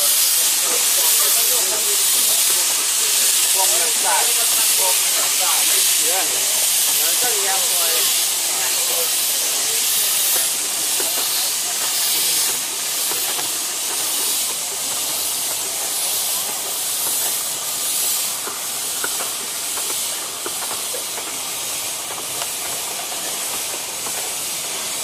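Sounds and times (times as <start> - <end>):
loud hiss of steam: 0.0 - 25.0
wheels clicking over rails: 9.6 - 25.0.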